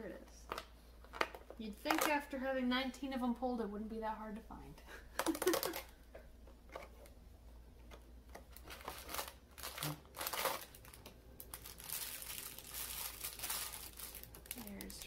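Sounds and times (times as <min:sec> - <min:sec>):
plastic bag crinkling: 0:00.5 - 0:02.3, 0:05.2 - 0:05.9, 0:08.4 - 0:15.0.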